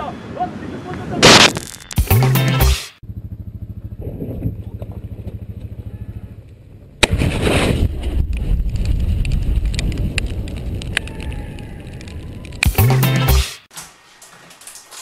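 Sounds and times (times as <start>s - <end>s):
rushing noise with crackles: 7.1s - 12.7s.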